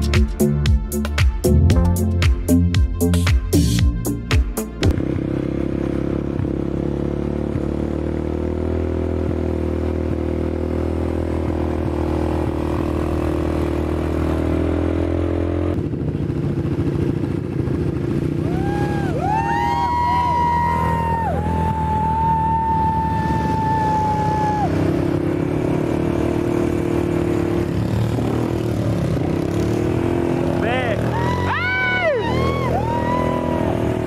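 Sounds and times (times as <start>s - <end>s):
quad bike engine running: 0.0s - 34.0s
riders whooping: 18.2s - 25.6s, 30.2s - 34.0s.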